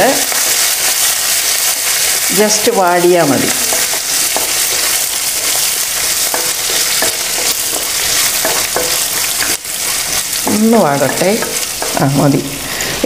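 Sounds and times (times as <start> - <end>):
food sizzling in hot oil: 0.0 - 13.0
spatula scraping a pan: 3.5 - 13.0.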